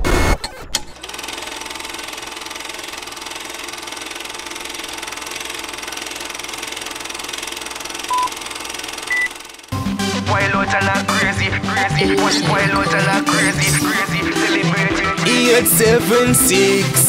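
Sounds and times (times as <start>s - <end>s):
film projector clattering: 0.8s - 9.8s
short beep: 8.1s - 8.3s, 9.1s - 9.4s.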